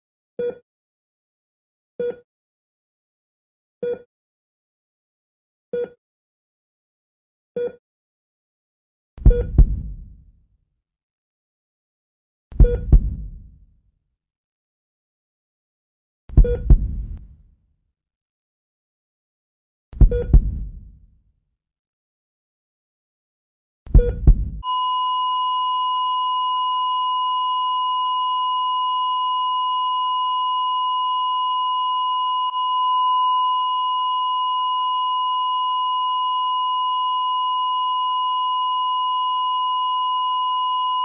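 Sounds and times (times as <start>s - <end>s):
heart monitor flatline beep: 9.2s - 9.9s, 12.6s - 13.4s, 16.4s - 17.2s, 20.0s - 20.8s, 23.9s - 41.0s
low thumps: 9.2s - 10.2s, 12.6s - 13.6s, 16.4s - 17.4s, 20.0s - 21.0s, 23.9s - 24.6s.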